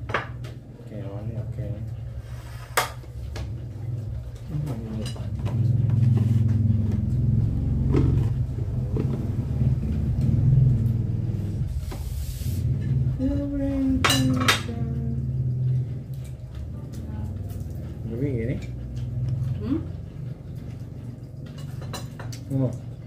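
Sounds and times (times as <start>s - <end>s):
low steady rumble: 0.7s - 23.0s
plates and cutlery clinking: 21.4s - 22.5s.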